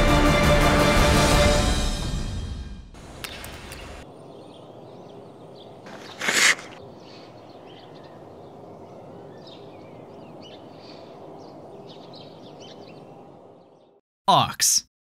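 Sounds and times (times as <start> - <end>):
outdoor background noise: 2.9 - 14.0.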